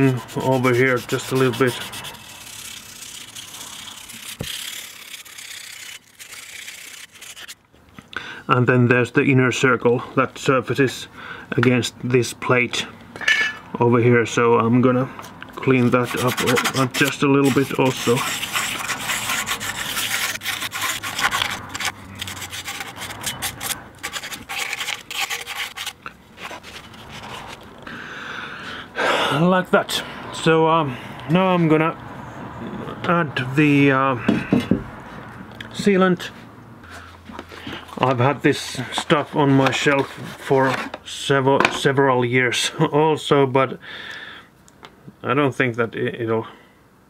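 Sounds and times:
abrasive paper scratching metal: 0:00.0 - 0:07.6, 0:15.7 - 0:27.6
sandpaper rubbing metal: 0:00.0 - 0:07.6, 0:15.8 - 0:27.6.

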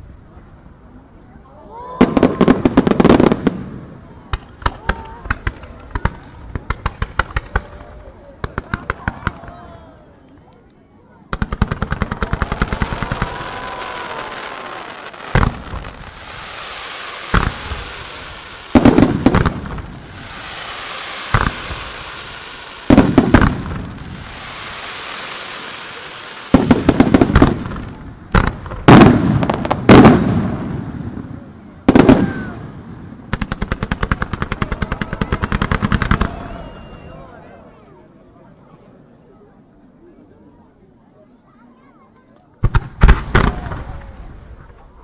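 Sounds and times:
fireworks rapid shots: 0:02.0 - 0:09.5, 0:11.3 - 0:31.0, 0:33.3 - 0:36.5, 0:42.6 - 0:44.1
crackling firework bursts: 0:02.0 - 0:09.9, 0:11.3 - 0:37.2, 0:42.6 - 0:45.0
fireworks bangs: 0:02.0 - 0:09.9, 0:11.3 - 0:37.2, 0:42.6 - 0:45.0
fireworks hiss: 0:11.3 - 0:36.8.

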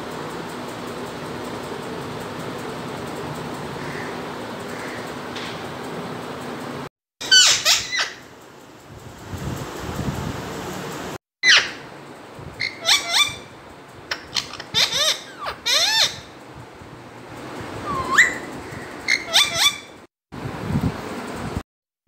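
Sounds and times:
parakeet calls and squawks: 0:03.8 - 0:05.1, 0:07.2 - 0:08.3, 0:11.4 - 0:11.9, 0:12.6 - 0:16.4, 0:17.8 - 0:20.0.

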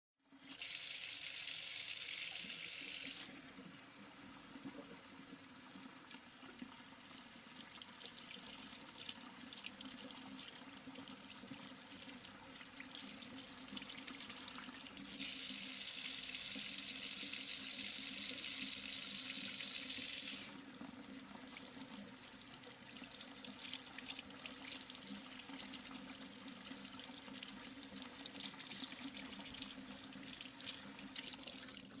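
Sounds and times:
strong stream of water into tray: 0:15.1 - 0:20.6.

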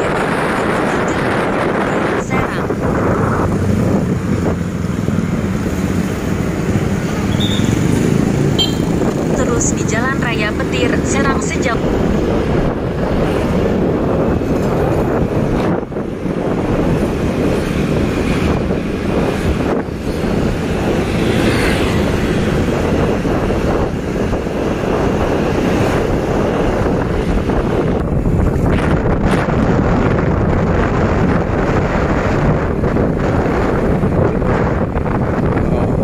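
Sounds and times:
road and engine rumble: 0:00.0 - 0:36.0
wind rushing over microphone: 0:00.0 - 0:36.0.

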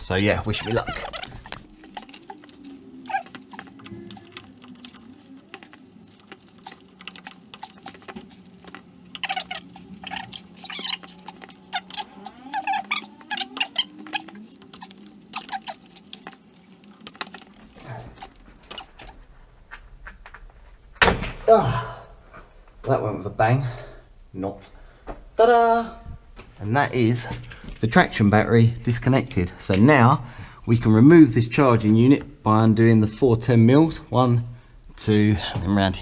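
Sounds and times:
gloves and screwdriver clicking on plastic: 0:00.4 - 0:19.2.

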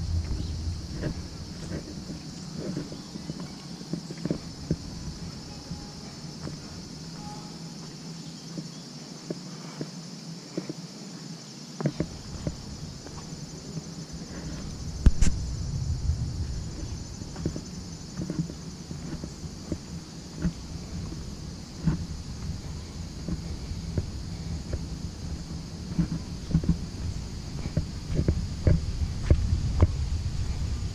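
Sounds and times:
footsteps on dirt path: 0:00.0 - 0:10.8, 0:11.8 - 0:30.9
high insect drone: 0:00.0 - 0:30.9.

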